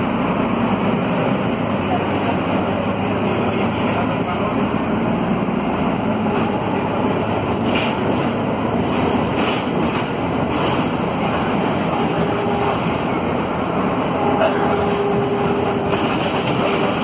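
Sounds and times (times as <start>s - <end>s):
bus diesel engine: 0.0s - 17.0s
road noise: 0.0s - 17.0s.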